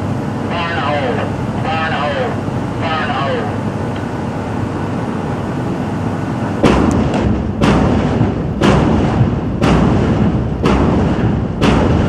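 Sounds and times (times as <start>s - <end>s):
steady background rush: 0.0s - 12.0s
explosive booms: 6.6s - 12.0s.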